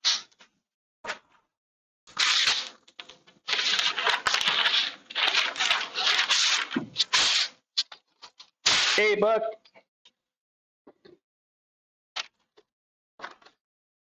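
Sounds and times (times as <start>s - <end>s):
sandpaper rubbing wood: 3.5s - 7.5s.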